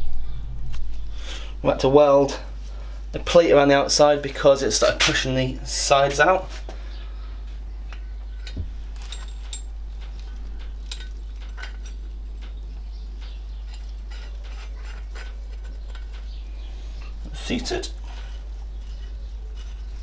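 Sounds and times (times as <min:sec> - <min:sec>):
low hum: 0:00.0 - 0:04.6, 0:06.6 - 0:17.3.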